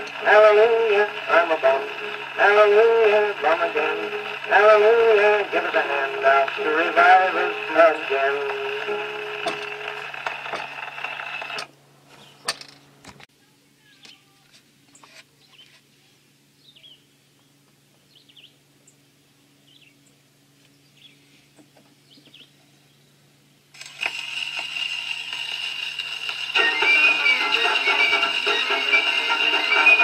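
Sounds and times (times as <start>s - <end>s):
gramophone music: 0.0s - 10.5s, 26.2s - 30.0s
record surface hiss: 0.0s - 30.0s
sharp clicks of soundbox: 8.4s - 11.7s.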